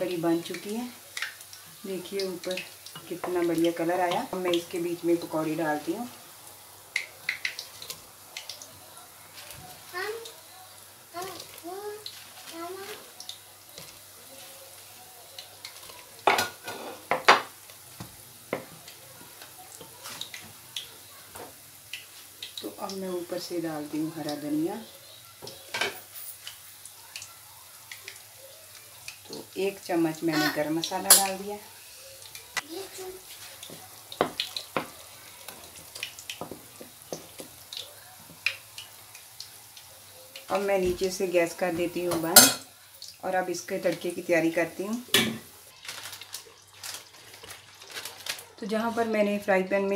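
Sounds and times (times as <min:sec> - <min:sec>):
faint simmering hiss: 0:00.0 - 0:49.9
spatula stirring in pot: 0:30.3 - 0:40.5.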